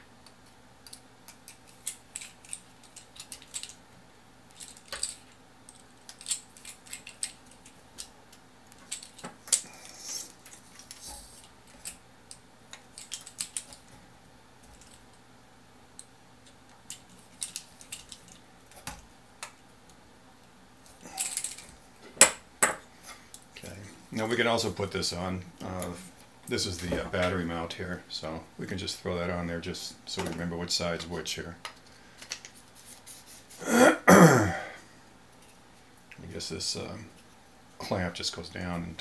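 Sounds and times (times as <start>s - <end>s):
metal parts rattling when handled: 0.8s - 3.8s, 4.5s - 8.1s, 8.7s - 9.6s, 10.3s - 13.9s, 14.7s - 15.1s, 16.8s - 18.9s, 21.1s - 21.8s.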